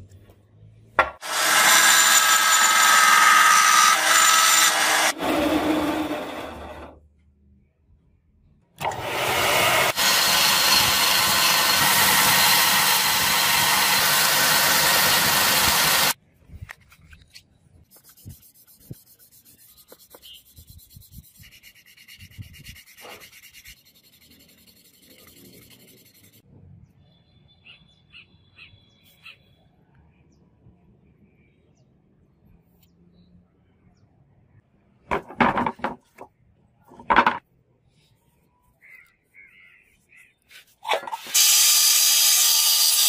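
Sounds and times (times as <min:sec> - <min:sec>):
loud abrasive rasp: 0:01.2 - 0:06.9, 0:08.9 - 0:16.2
block scratching on sandpaper: 0:17.8 - 0:26.4.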